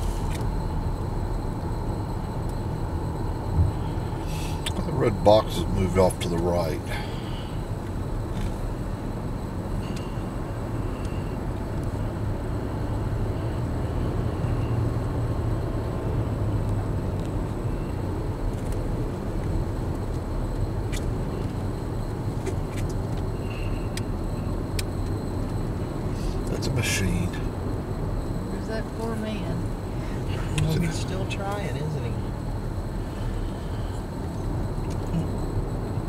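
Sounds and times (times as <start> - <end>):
tyre and engine noise: 0.0 - 36.0.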